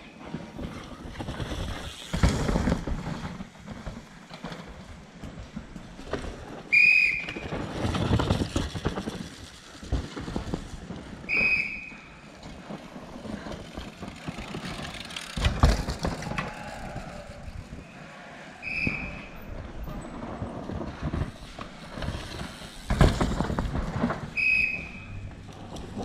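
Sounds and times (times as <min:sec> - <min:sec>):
mountain bike tyres and rattling: 0:00.0 - 0:26.0
high whistle blasts: 0:06.7 - 0:07.5, 0:11.3 - 0:12.1, 0:17.8 - 0:19.4, 0:24.3 - 0:25.2.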